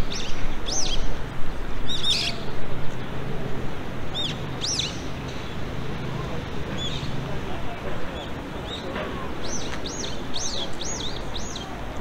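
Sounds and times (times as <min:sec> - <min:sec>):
songbird chirping: 0:04.1 - 0:07.3, 0:08.1 - 0:11.8.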